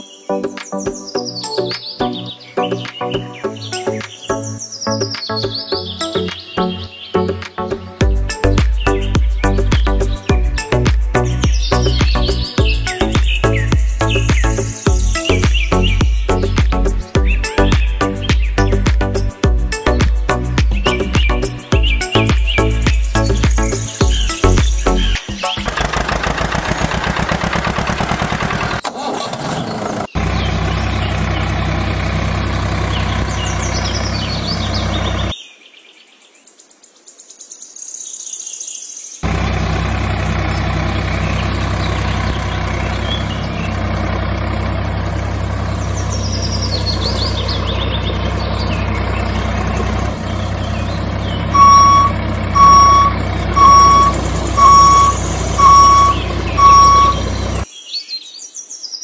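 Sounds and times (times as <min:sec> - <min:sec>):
diesel tractor engine idling: 0:08.0 - 0:35.3, 0:39.2 - 0:57.7
reversing alarm beeping: 0:51.4 - 0:57.6.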